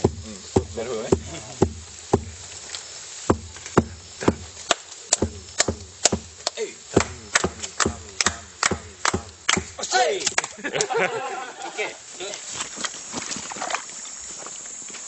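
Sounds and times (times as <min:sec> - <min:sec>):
sharp knocks: 0:00.0 - 0:02.4, 0:03.3 - 0:04.5, 0:05.1 - 0:09.8.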